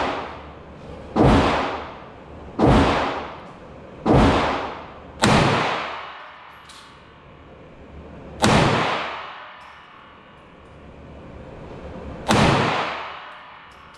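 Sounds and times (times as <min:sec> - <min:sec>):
pistol shots echoing indoors: 0:00.0 - 0:07.2, 0:08.4 - 0:10.5, 0:12.2 - 0:13.9.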